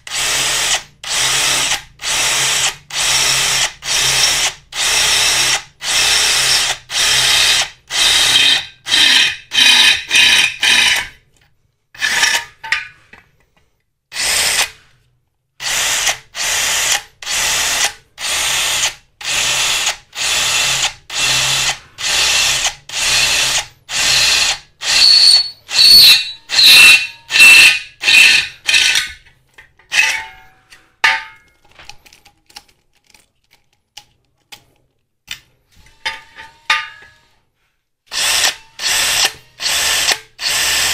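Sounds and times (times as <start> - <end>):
cordless drill drilling into steel: 0.1 - 11.1, 14.1 - 14.8, 15.6 - 29.1, 38.1 - 40.9.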